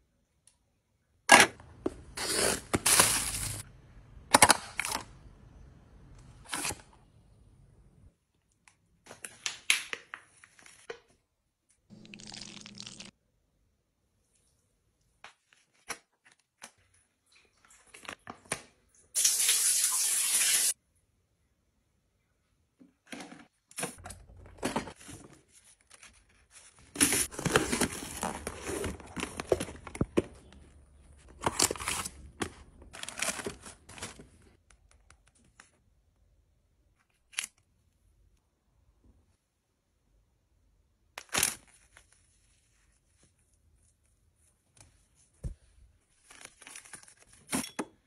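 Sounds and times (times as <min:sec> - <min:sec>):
sachet tearing: 0:11.9 - 0:13.1.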